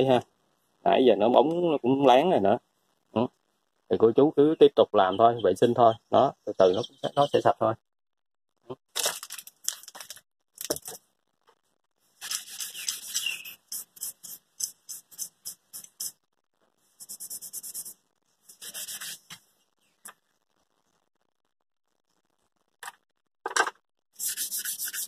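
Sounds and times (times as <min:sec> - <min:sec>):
sandpaper scratching metal: 0:12.2 - 0:16.2, 0:17.0 - 0:19.3, 0:24.2 - 0:25.0.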